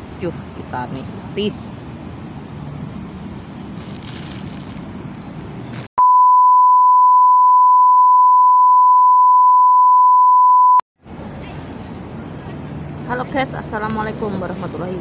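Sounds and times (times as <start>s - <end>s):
outdoor background noise: 0.0s - 5.9s, 11.0s - 15.0s
high-pitched reference tone beep: 6.0s - 10.8s.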